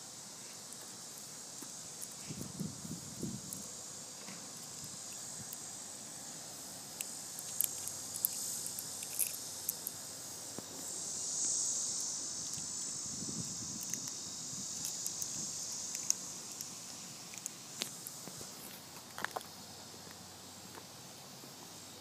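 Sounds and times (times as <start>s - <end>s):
high-pitched insect chorus: 0.0s - 22.0s
small plastic clicks: 7.0s - 10.0s, 14.8s - 16.7s, 17.3s - 18.2s.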